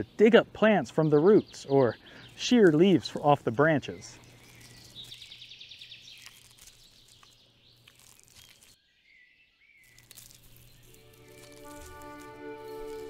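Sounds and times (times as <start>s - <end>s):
crunching of leaves: 2.3s - 13.0s
bird trill: 3.8s - 13.0s
sustained music notes: 10.9s - 13.0s.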